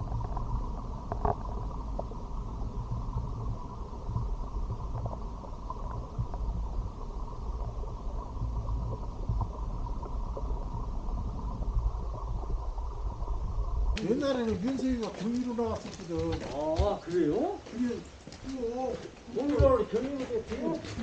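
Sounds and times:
underwater stream rumble: 0.0s - 15.0s
faint ticks: 0.0s - 21.0s.

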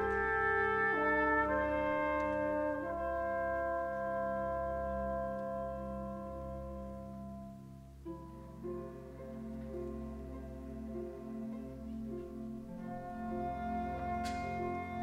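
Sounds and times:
trumpet holding long note: 0.0s - 7.1s
wind band playing: 0.0s - 7.7s, 9.2s - 15.0s.

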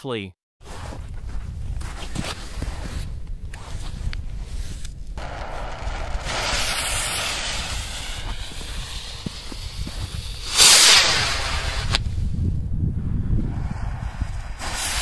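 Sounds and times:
firework fuse hissing: 5.2s - 12.2s, 13.5s - 15.0s
firework launching burst: 5.2s - 12.4s, 13.4s - 15.0s.

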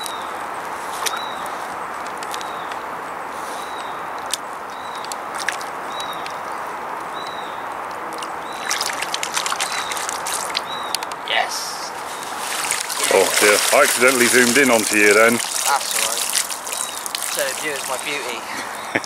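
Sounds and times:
steady background noise: 0.0s - 19.0s
small bird chirping: 5.9s - 11.1s, 15.6s - 18.1s.

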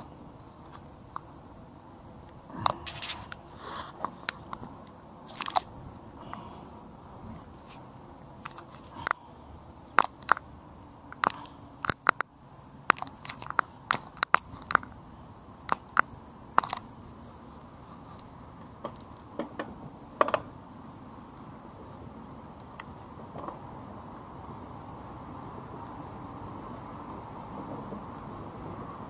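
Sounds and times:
tyre and wind hiss: 0.0s - 29.0s
bike clicks and rattles: 8.4s - 9.2s, 15.7s - 16.8s.

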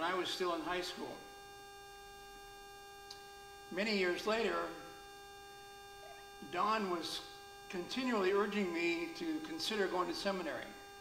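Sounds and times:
electrical hum: 0.0s - 11.0s
faint held tones: 4.7s - 6.6s.

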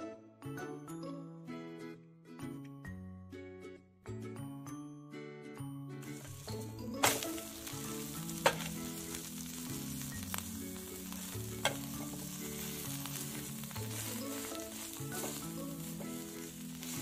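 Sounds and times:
omelette sizzling in a pan: 6.1s - 17.0s.

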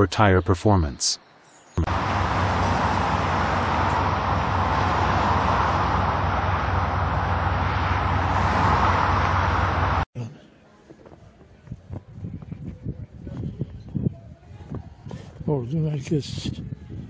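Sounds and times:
car engine and road noise: 1.8s - 10.1s
low hum: 1.8s - 10.1s.

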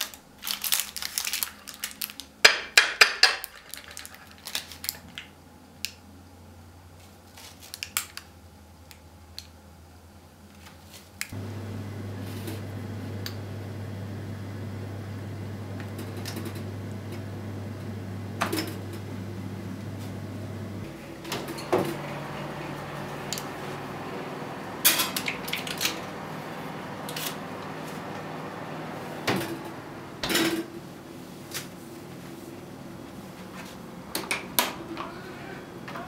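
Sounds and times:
steady low hum: 11.3s - 36.0s
oven door opening and closing: 11.4s - 30.7s.

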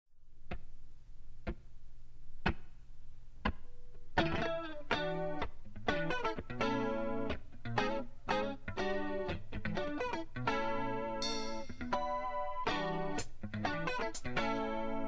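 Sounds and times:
jazz-funk chords: 3.4s - 15.0s
low steady tone: 11.2s - 13.1s.

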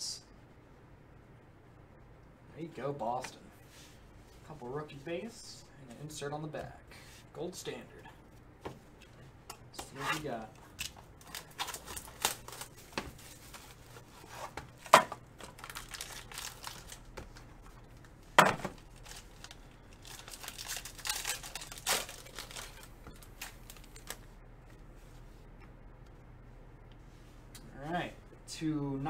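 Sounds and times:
foil wrapper crinkling and tearing: 10.2s - 14.0s, 15.4s - 17.1s, 18.7s - 24.3s.

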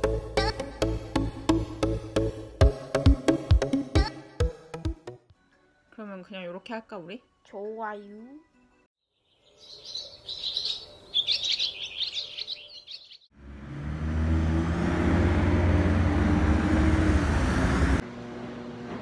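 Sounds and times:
small birds chirping: 9.0s - 13.3s
vehicle engine rumble in traffic: 13.4s - 18.0s.

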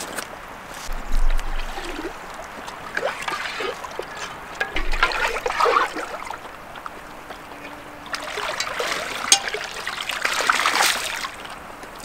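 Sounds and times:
water trickling and splashing: 0.8s - 12.0s
low rumbling bump: 0.9s - 2.4s.

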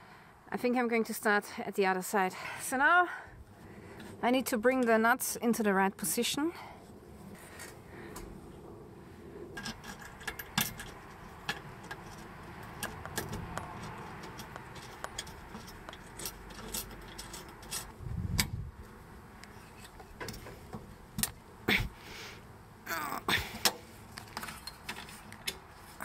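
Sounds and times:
small metallic clicks and taps: 9.6s - 18.5s.

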